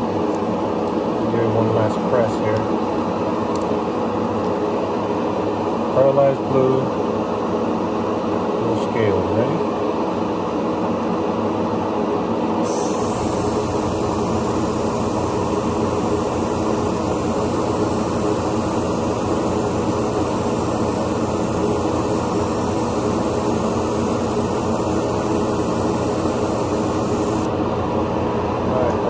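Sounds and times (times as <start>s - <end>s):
exhaust fan running: 0.0s - 29.0s
high hiss: 12.6s - 27.5s.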